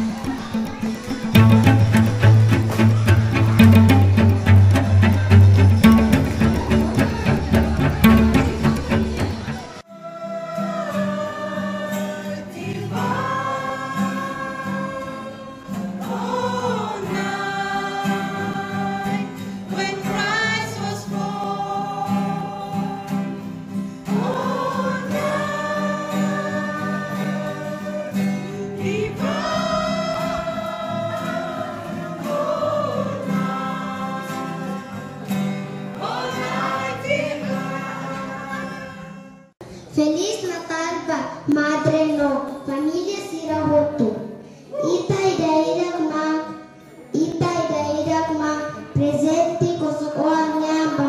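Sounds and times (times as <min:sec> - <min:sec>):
acoustic guitars strumming: 0:00.0 - 0:40.0
group singing a religious song: 0:02.2 - 0:39.4.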